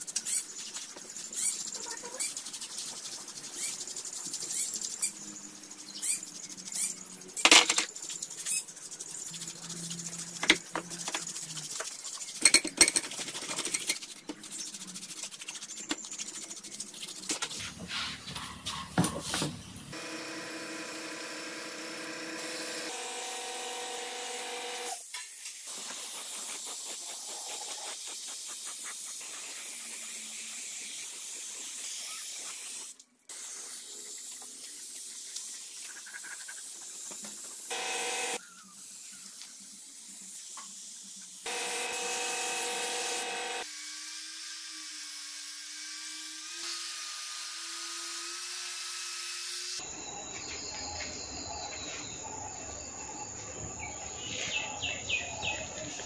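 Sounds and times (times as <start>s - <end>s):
angle grinder humming: 19.9s - 25.0s, 37.7s - 38.4s, 41.5s - 44.7s
paint spray gun hissing: 19.9s - 43.8s.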